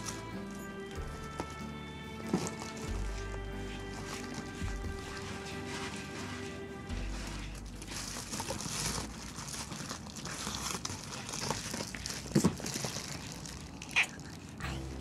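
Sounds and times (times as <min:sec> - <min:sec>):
grooming brush rasping through fur: 0:02.2 - 0:09.3.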